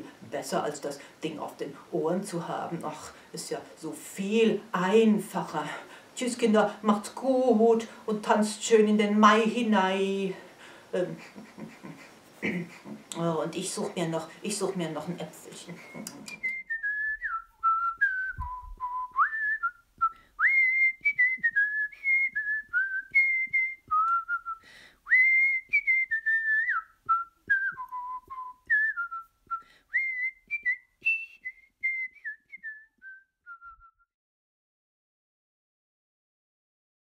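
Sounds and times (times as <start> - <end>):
person whistling a melody: 15.8 - 34.1.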